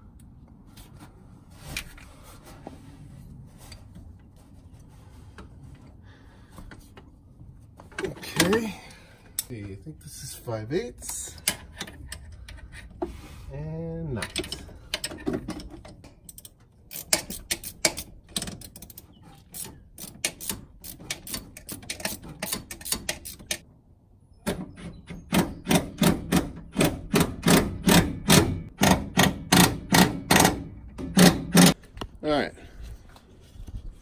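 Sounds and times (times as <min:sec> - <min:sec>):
ratchet wrench clicking: 0:16.3 - 0:19.0, 0:20.0 - 0:23.6.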